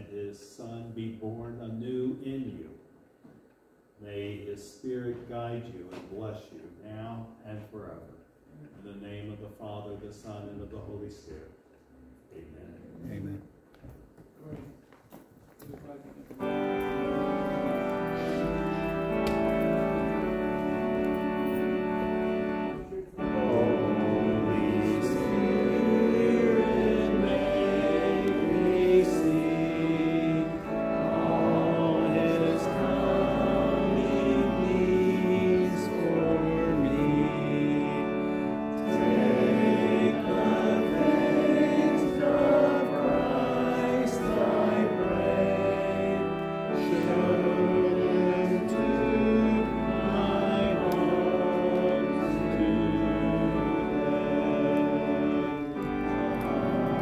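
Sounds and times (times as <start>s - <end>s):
organ playing slow chords: 16.4s - 57.0s.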